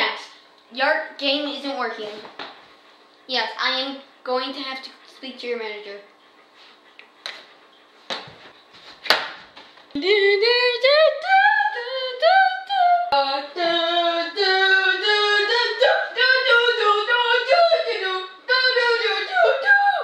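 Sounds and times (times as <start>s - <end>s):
high voice singing wordless tune: 10.0s - 20.0s.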